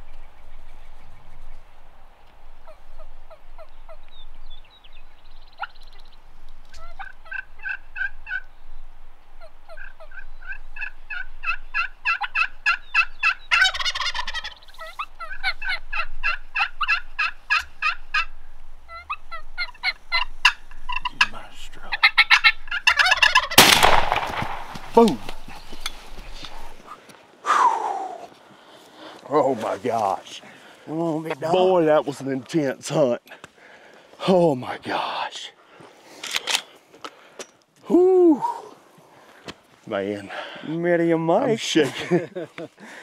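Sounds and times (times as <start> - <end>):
turkey gobble: 5.4 - 5.9, 6.7 - 8.5, 9.4 - 24.0
turkey yelps and clucks: 5.4 - 8.5, 9.4 - 23.6.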